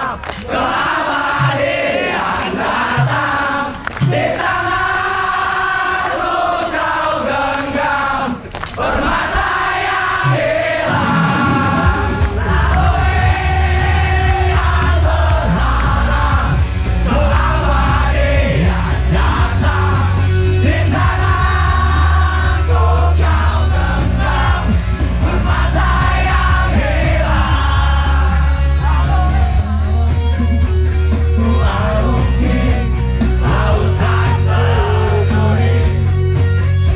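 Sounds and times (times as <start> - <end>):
drums: 0.5 - 7.8, 8.8 - 36.9
bass guitar: 10.2 - 36.9
male singer: 10.3 - 30.1, 31.4 - 36.1
electric guitar: 11.0 - 36.9.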